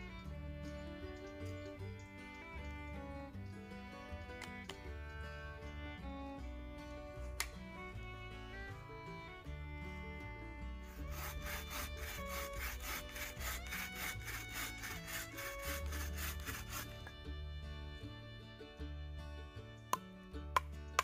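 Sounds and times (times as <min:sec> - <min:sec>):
background music with sustained notes: 0:00.0 - 0:21.0
hand saw cutting wood: 0:10.8 - 0:17.2.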